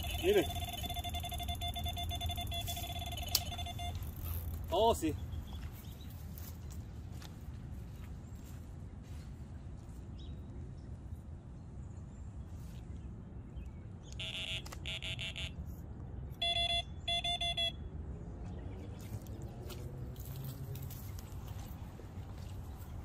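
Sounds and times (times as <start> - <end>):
rapid electronic beeping: 0.0 - 4.3, 14.2 - 15.6.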